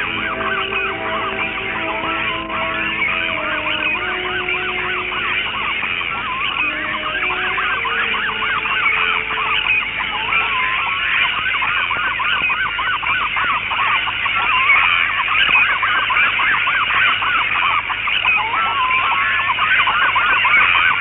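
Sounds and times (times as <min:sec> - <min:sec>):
flock of birds honking: 0:00.0 - 0:21.0.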